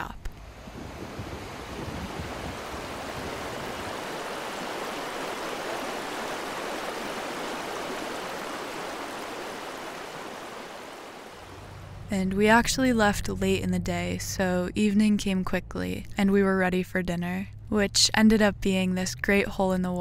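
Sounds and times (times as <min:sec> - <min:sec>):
stream water rushing: 0:00.4 - 0:12.0.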